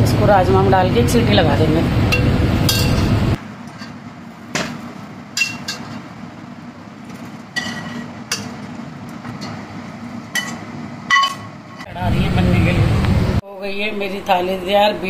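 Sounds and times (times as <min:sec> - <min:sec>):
low steady hum: 0:00.0 - 0:15.0
spoon scraping a steel pan: 0:07.6 - 0:08.5.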